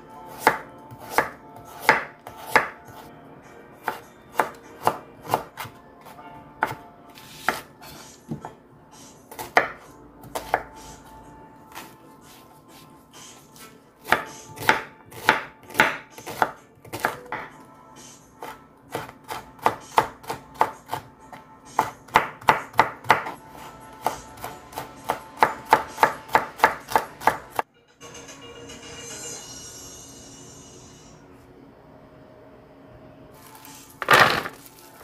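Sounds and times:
knife chopping on wooden board: 0:00.3 - 0:03.0, 0:06.6 - 0:08.6, 0:09.3 - 0:10.7, 0:13.6 - 0:17.5, 0:21.8 - 0:23.4, 0:24.0 - 0:27.6.

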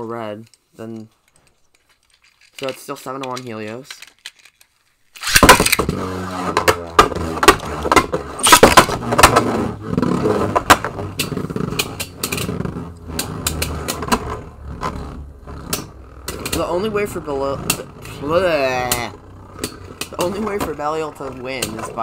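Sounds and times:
spinning tops whirring and scraping: 0:01.5 - 0:22.0
spinning tops clacking together: 0:01.6 - 0:05.8
spinning tops launching clatter: 0:01.9 - 0:09.4.

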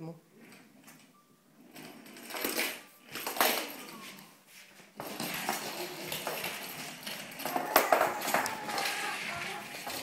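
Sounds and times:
toy rolling over wooden floor: 0:00.4 - 0:10.0
toy wheels rattling: 0:01.7 - 0:04.0, 0:05.0 - 0:10.0.

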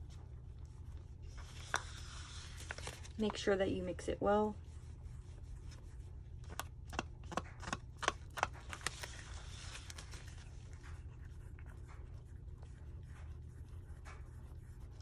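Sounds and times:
low steady hum: 0:00.0 - 0:15.0
wooden stick scraping plastic cup: 0:01.4 - 0:03.4.

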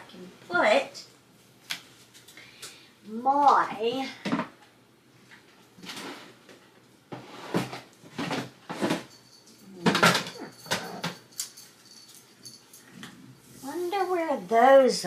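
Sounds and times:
rustling and knocking of handled items: 0:04.2 - 0:14.3.

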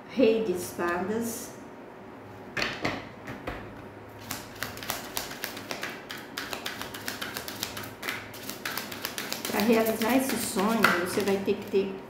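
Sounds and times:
cards tapping and flicking: 0:04.2 - 0:11.7.

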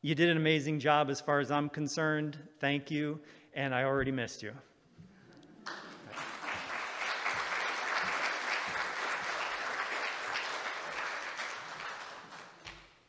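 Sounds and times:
audience applauding: 0:05.6 - 0:13.0.

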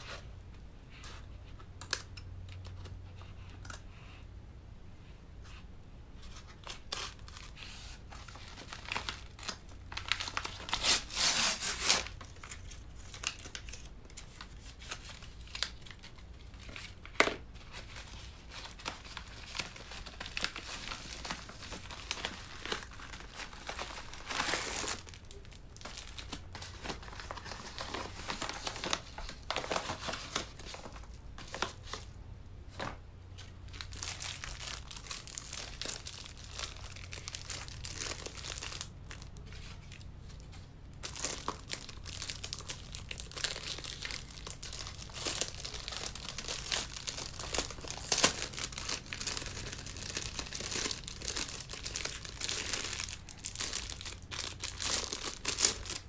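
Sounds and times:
plastic wrap crinkling: 0:06.3 - 0:56.0
paper mailer tearing: 0:08.6 - 0:12.2.

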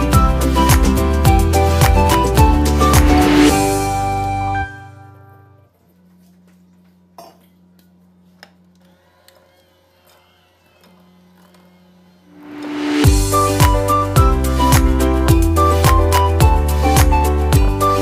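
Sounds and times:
electric hand mixer humming: 0:08.9 - 0:13.4.

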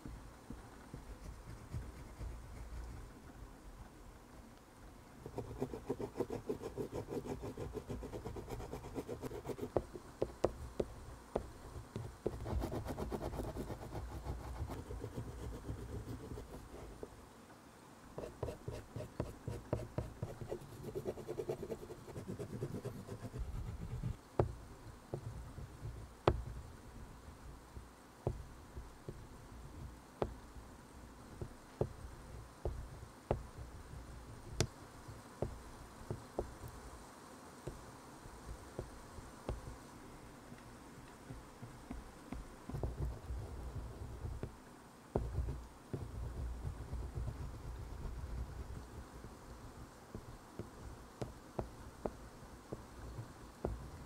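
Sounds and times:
pastel scratching on paper: 0:05.2 - 0:09.9, 0:12.3 - 0:17.0, 0:18.2 - 0:24.2
pastel tapping on paper: 0:45.2 - 0:48.8.

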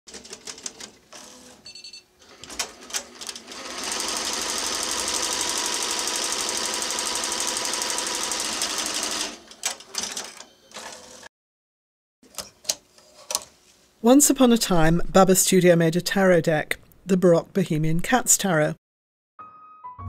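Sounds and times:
embroidery machine stitching: 0:02.2 - 0:11.3.

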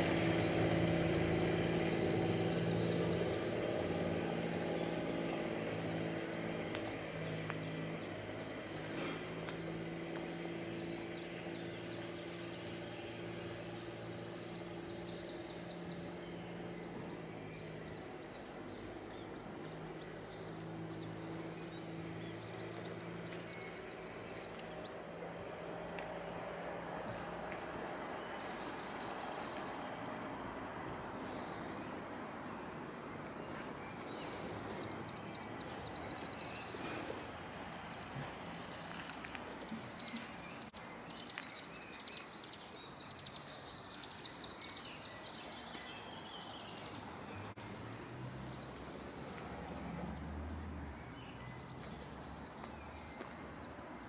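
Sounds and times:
low engine drone: 0:00.0 - 0:38.8
outdoor background hum: 0:00.0 - 0:54.0
songbirds calling and trilling: 0:00.0 - 0:54.0.

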